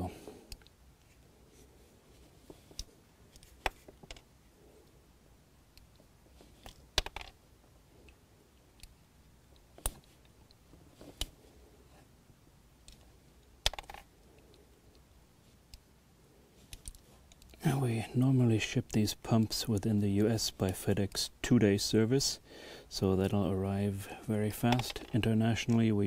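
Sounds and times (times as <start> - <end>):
plastic plugs clicking and popping: 6.6 - 7.4, 13.6 - 14.1, 24.7 - 25.3.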